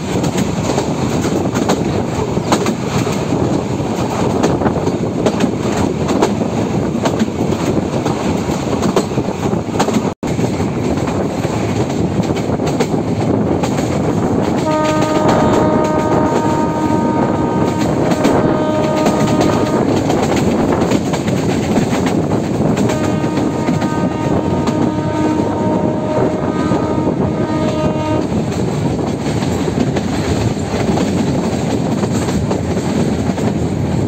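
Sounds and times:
train wheels rumbling and rattling: 0.0s - 34.0s
train horn long blast: 14.5s - 20.4s, 22.8s - 28.4s.

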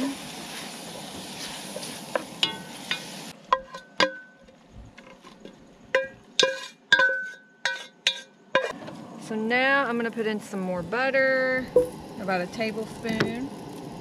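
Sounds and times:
spinach sizzling in butter: 0.0s - 3.8s, 5.4s - 8.8s, 9.9s - 14.0s
wooden spoon knocking metal pot: 3.5s - 5.2s, 5.9s - 8.7s.

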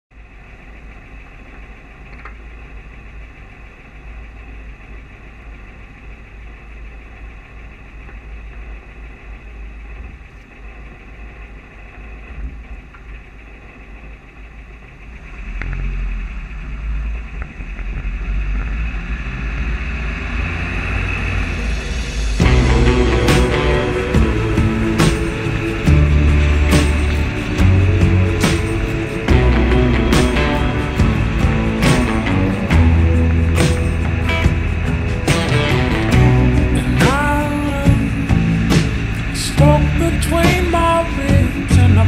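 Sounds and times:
wind rumble on microphone: 9.8s - 42.0s
music: 21.5s - 42.0s.

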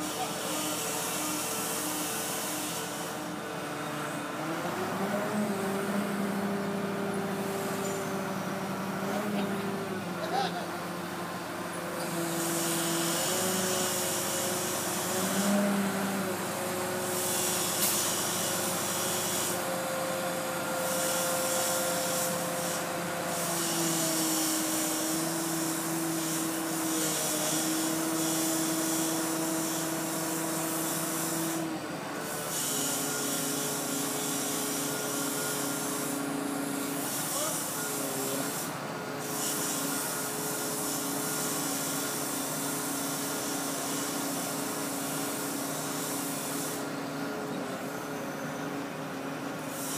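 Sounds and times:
hydraulic hiss: 0.0s - 3.5s, 12.0s - 19.8s, 20.6s - 48.0s, 49.5s - 49.9s
crane engine droning: 0.0s - 23.6s, 28.6s - 49.8s.

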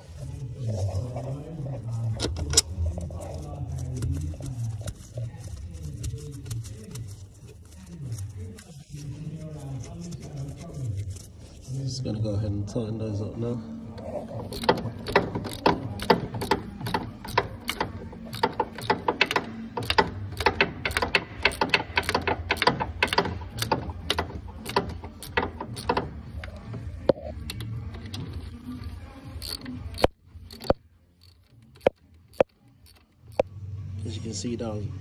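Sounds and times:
socket ratchet clicking: 14.4s - 26.5s, 29.3s - 33.5s.

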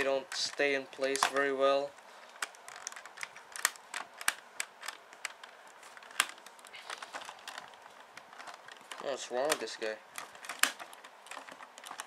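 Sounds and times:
plastic panels snapping: 2.3s - 12.0s
plastic toy parts clicking: 2.4s - 12.0s.

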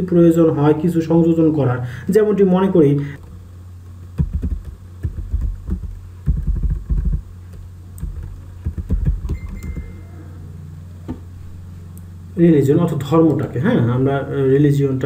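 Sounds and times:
keyboard typing: 4.2s - 10.0s.

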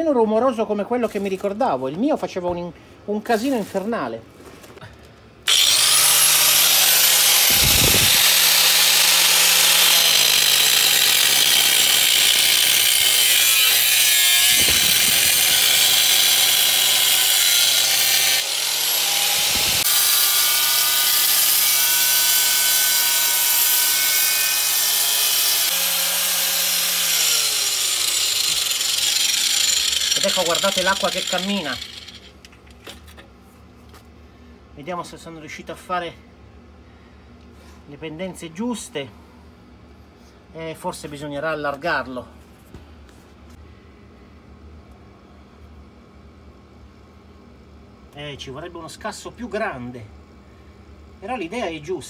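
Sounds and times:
angle grinder cutting concrete: 5.5s - 32.3s.

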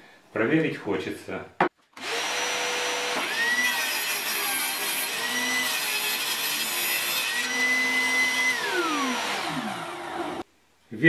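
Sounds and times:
table saw cutting plywood: 2.0s - 10.4s
shop vacuum running: 7.2s - 10.4s.

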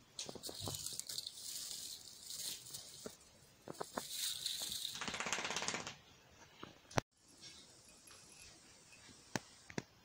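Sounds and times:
artificial branches rustling: 0.2s - 5.0s.

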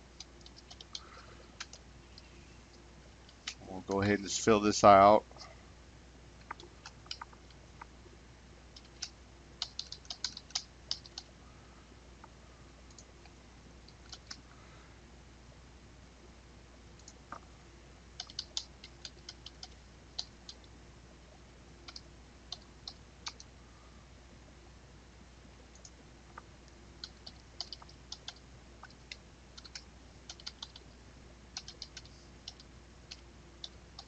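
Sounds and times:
computer keyboard typing: 0.2s - 1.8s, 6.4s - 7.4s, 8.8s - 11.3s, 13.9s - 14.4s, 18.2s - 20.6s, 21.8s - 23.5s, 27.0s - 30.8s, 31.5s - 34.0s.

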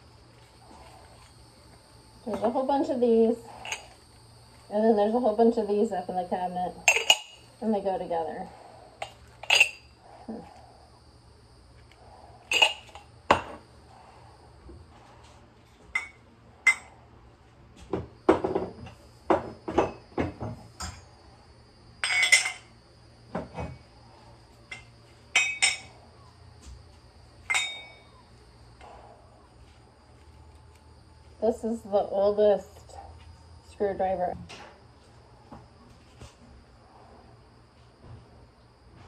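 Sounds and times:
metal cups clinking: 3.6s - 4.0s, 6.8s - 7.5s, 9.0s - 9.9s, 12.4s - 13.5s, 15.9s - 16.9s, 22.0s - 22.7s, 24.7s - 25.9s, 27.5s - 28.1s.

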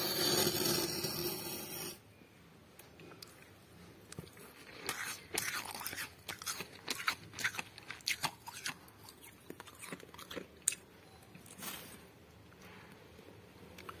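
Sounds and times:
freezer frost crunching: 4.2s - 10.8s.

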